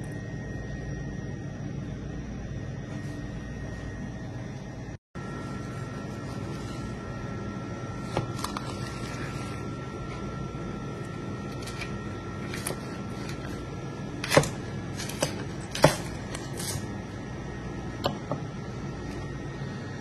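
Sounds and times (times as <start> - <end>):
steady low hum: 0.0 - 20.0
knife slicing fish: 11.5 - 16.9.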